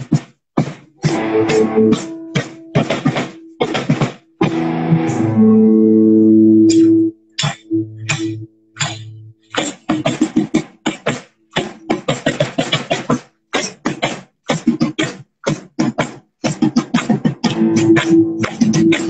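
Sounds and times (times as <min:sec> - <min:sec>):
drum kit playing busy patterns: 0:00.0 - 0:05.6, 0:06.7 - 0:19.0
guitar holding low notes: 0:01.0 - 0:03.6, 0:04.4 - 0:10.0, 0:17.5 - 0:19.0.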